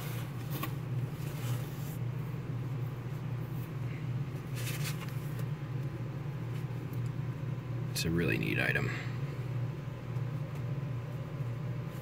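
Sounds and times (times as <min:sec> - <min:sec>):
steady low hum: 0:00.0 - 0:12.0
paper booklet handled: 0:04.4 - 0:05.5
papery rustle: 0:04.4 - 0:05.5.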